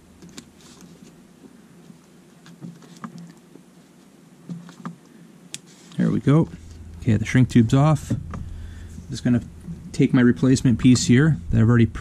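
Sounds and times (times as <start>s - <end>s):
faint rustling: 0.0s - 12.0s
small clicks of handling wires: 0.2s - 3.6s.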